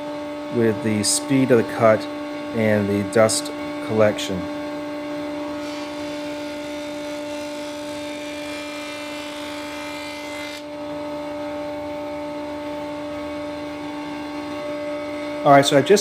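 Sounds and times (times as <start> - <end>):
table saw motor hum: 0.0 - 16.0
saw cutting plywood: 5.5 - 10.7.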